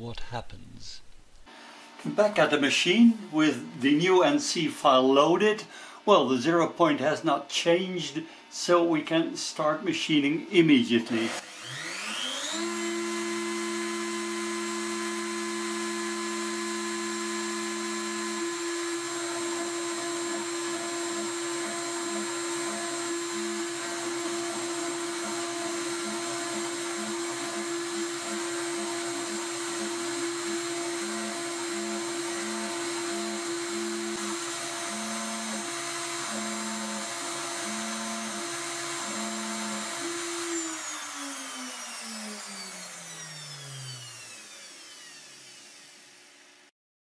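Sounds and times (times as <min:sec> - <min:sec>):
milling spindle high whine: 0:11.6 - 0:46.0.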